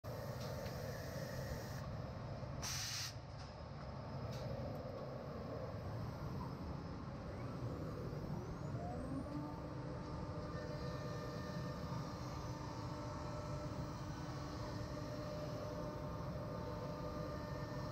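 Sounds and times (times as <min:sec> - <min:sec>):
compressed air hiss: 0:02.6 - 0:03.2
spindle whine: 0:04.1 - 0:17.9
machine humming: 0:04.5 - 0:17.9.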